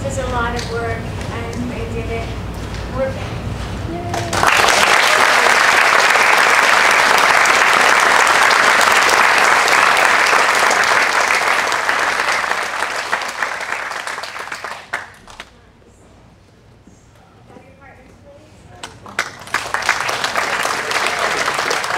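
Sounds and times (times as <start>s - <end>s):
crowd applauding: 4.2s - 15.5s, 19.2s - 21.9s.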